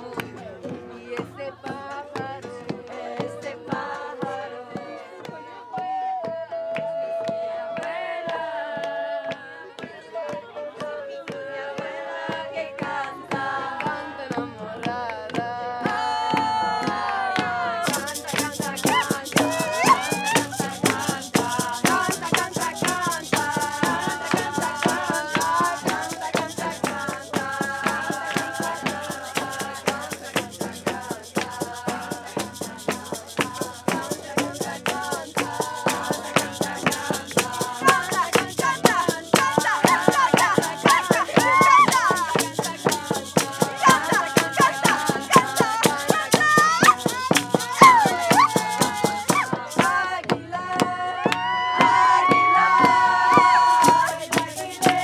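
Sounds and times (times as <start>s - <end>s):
hand clapping: 0.0s - 0.5s, 6.8s - 55.0s
group singing a chant: 0.0s - 55.0s
strummed acoustic guitar: 17.8s - 51.0s
frame drums struck with beaters: 17.8s - 55.0s.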